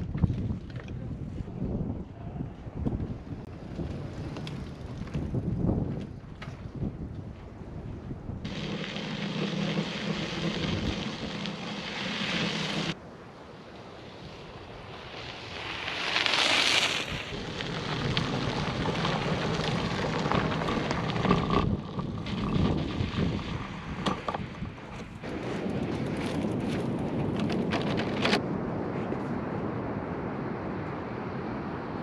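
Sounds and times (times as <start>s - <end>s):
wind buffeting microphone: 0.0s - 13.0s, 17.0s - 32.0s
bicycle tyre noise: 2.9s - 13.0s, 13.8s - 28.4s
bicycle passing by: 3.5s - 6.3s, 8.4s - 13.0s, 13.6s - 28.4s.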